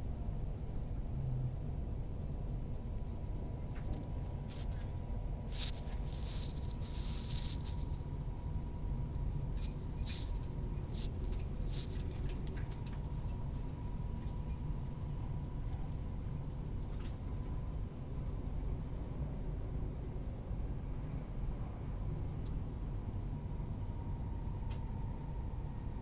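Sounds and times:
faint steady hum: 0.0s - 26.0s
train rumbling at speed: 0.0s - 26.0s
light ticks and rustles: 2.6s - 17.4s, 19.5s - 24.9s.

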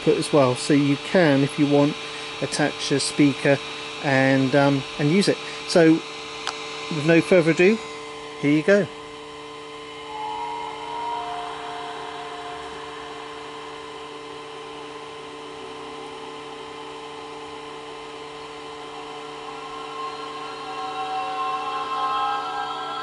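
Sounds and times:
projector whining hum: 0.0s - 23.0s
faint eerie tones: 6.9s - 23.0s
soft choir-like chord: 10.0s - 16.6s, 18.3s - 23.0s.

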